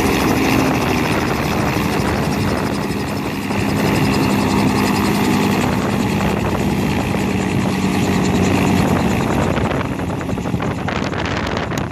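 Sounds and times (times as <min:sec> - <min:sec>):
helicopter rotor beating: 0:00.0 - 0:11.9.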